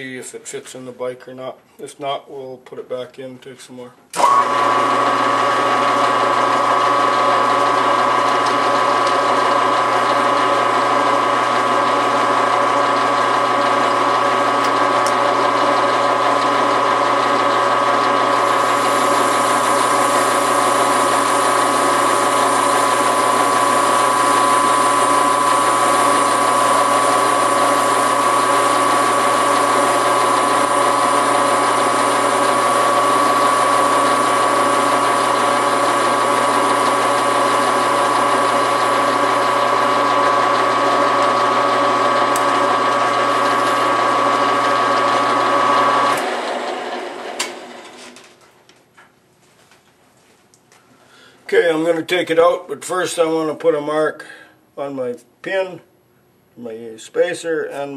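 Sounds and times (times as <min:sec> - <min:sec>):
metal lathe gear whine: 0:04.2 - 0:47.6.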